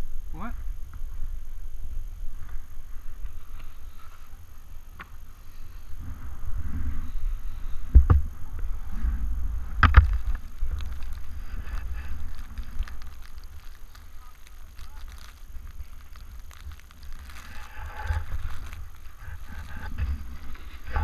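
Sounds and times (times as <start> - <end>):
wind buffeting microphone: 5.8 - 21.0
skis scraping over snow: 8.8 - 21.0.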